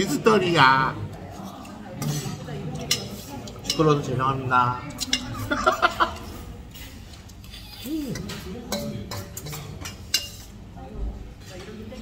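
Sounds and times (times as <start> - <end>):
metal spoon scraping steel bowl: 8.1 - 10.6.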